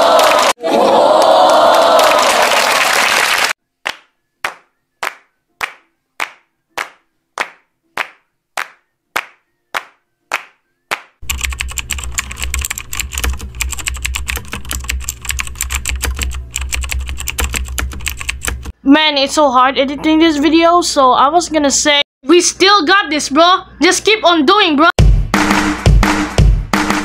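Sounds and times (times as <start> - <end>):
person clapping slowly: 3.8 - 11.2
rapid keyboard typing: 11.2 - 18.8.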